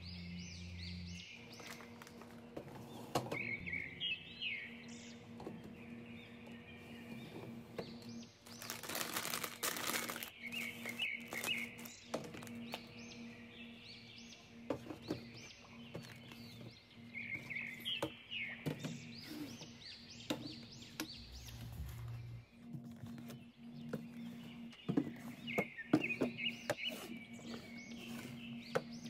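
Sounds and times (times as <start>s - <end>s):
birds chirping: 0.0s - 29.0s
steady low hum: 0.0s - 29.0s
rustling: 8.4s - 12.7s.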